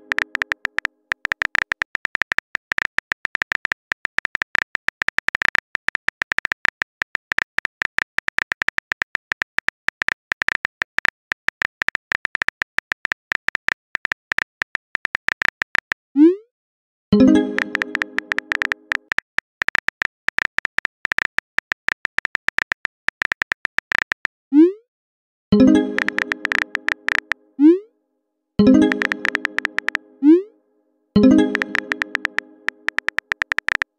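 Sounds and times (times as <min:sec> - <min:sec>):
keyboard typing clicks with pings: 0:00.0 - 0:01.8, 0:17.2 - 0:19.6, 0:25.6 - 0:27.4, 0:28.6 - 0:30.2, 0:31.2 - 0:33.9
plucked chime: 0:17.2 - 0:18.9, 0:25.6 - 0:27.2, 0:28.6 - 0:30.5, 0:31.2 - 0:32.9.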